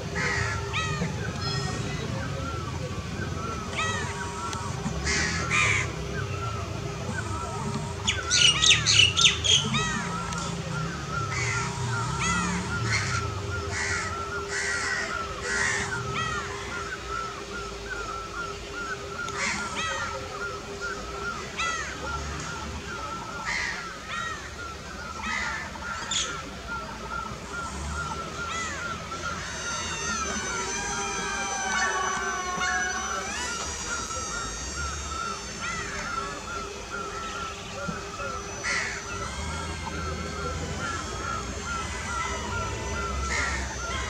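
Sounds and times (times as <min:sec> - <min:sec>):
birds chirping and chattering: 0:00.0 - 0:44.0
crows cawing: 0:00.2 - 0:01.8, 0:03.8 - 0:06.0, 0:11.2 - 0:16.9, 0:28.5 - 0:44.0.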